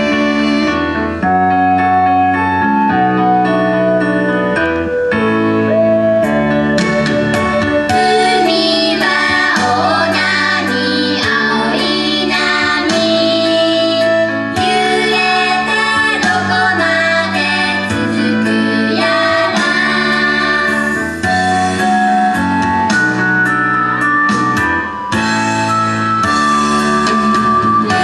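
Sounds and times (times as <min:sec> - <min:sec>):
instrumental accompaniment with keyboard: 0:00.0 - 0:28.0
girls singing a pop song: 0:07.9 - 0:21.1.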